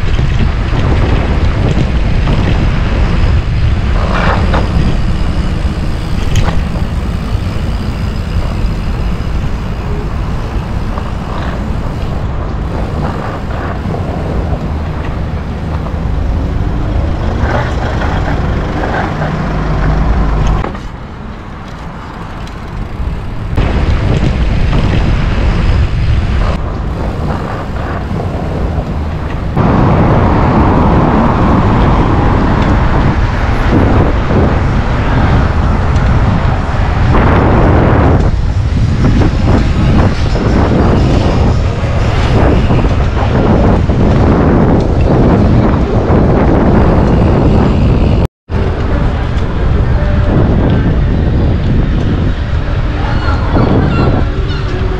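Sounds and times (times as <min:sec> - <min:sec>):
bike tyres rolling on tarmac: 0:00.0 - 0:54.9
wind rushing over microphone: 0:00.0 - 0:54.9.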